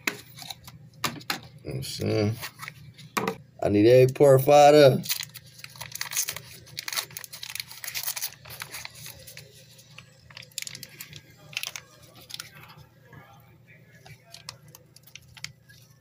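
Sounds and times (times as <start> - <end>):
plastic tearing: 5.0 - 12.7
plastic packaging crinkling: 5.0 - 12.8, 14.1 - 16.0.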